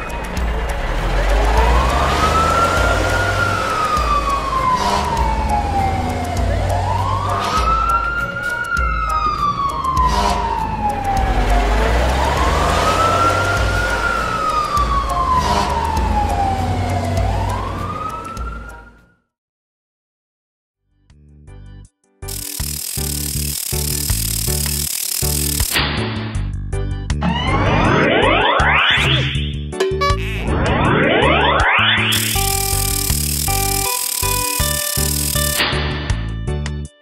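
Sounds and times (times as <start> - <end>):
cartoon fire truck siren wailing: 0.5 - 19.2, 27.2 - 29.4, 30.0 - 35.6.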